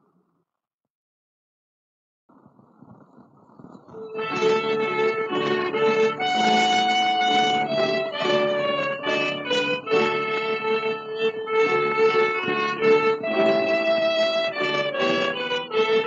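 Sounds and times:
record surface hiss: 0:02.3 - 0:15.1
orchestra playing folk song: 0:04.0 - 0:16.0.

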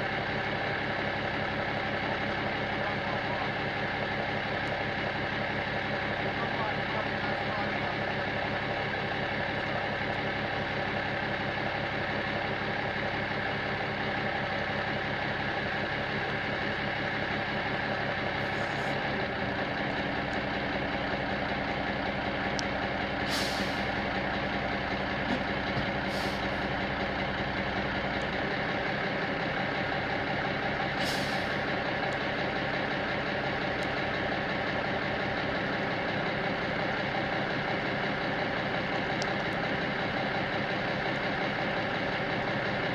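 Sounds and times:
truck engine idling: 0:00.0 - 0:42.9
air brake hisses: 0:23.2 - 0:23.9, 0:31.0 - 0:31.6.

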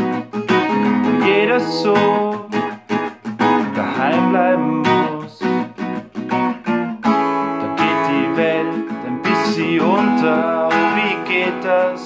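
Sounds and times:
acoustic guitar strumming: 0:00.0 - 0:12.0
man singing: 0:00.8 - 0:05.8, 0:07.4 - 0:12.0.

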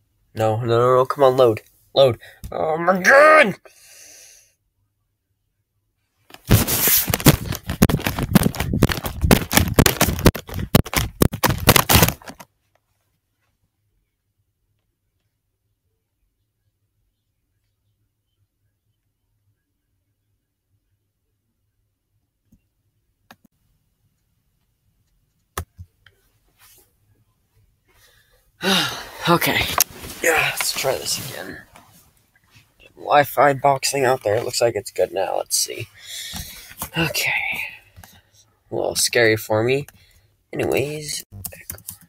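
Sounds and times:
person speaking: 0:00.4 - 0:03.6, 0:28.6 - 0:31.9, 0:32.8 - 0:38.0, 0:40.5 - 0:42.0
laptop clattering and knocking: 0:06.4 - 0:12.5
soft rustling: 0:29.4 - 0:32.9.

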